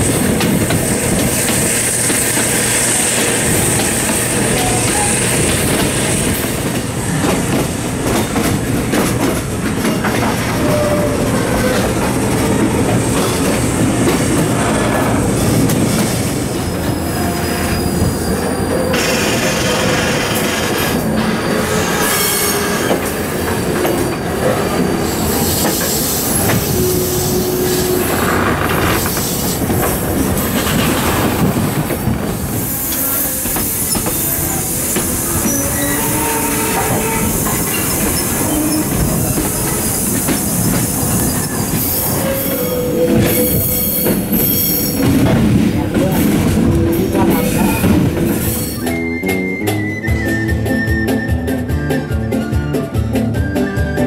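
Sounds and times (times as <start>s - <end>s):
train wheels rumbling and rattling: 0.0s - 54.0s
train wheels squealing: 1.1s - 6.6s, 16.5s - 29.7s, 32.5s - 45.2s, 47.3s - 52.8s.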